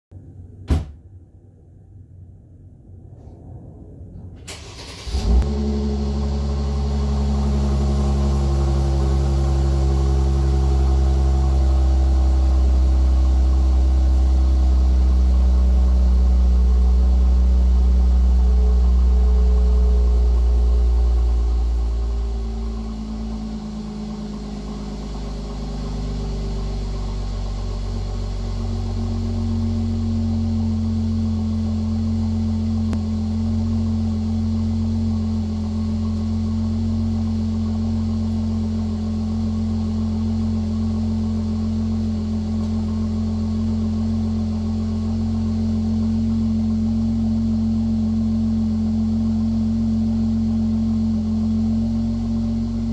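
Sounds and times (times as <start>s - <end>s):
car engine cold start: 4.4s - 13.4s
car engine fast idle: 4.5s - 52.9s.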